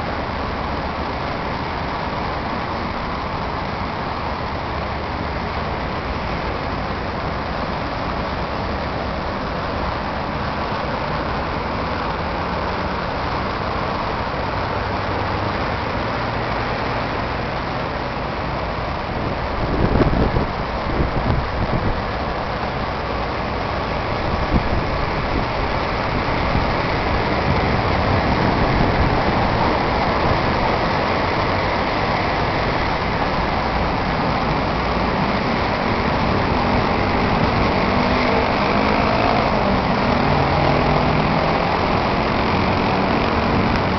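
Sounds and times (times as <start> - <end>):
city road traffic: 0.0 - 43.9
low engine hum: 0.0 - 43.9.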